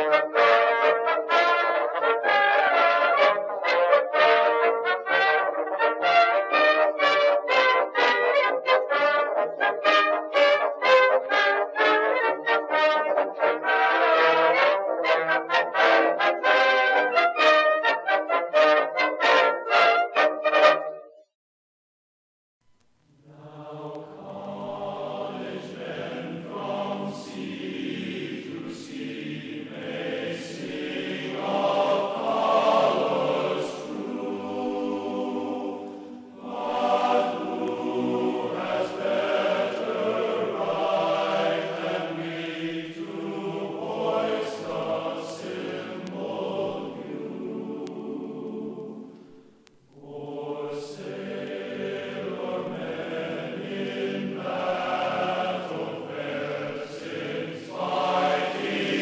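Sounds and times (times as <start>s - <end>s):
choir singing: 0.0s - 21.0s, 23.2s - 59.0s.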